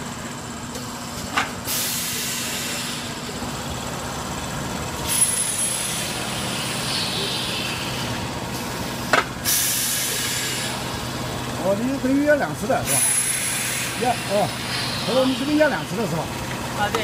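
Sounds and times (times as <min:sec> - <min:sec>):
steady machine hum: 0:00.0 - 0:17.0
compressed air hissing: 0:01.6 - 0:03.2, 0:05.0 - 0:11.2, 0:12.8 - 0:15.9
pneumatic valve click: 0:09.1 - 0:10.6.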